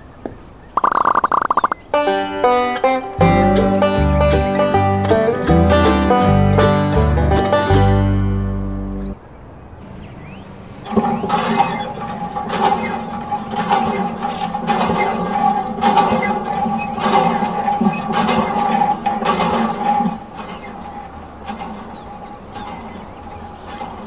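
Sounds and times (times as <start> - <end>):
water pump motor whining: 10.4 - 24.0.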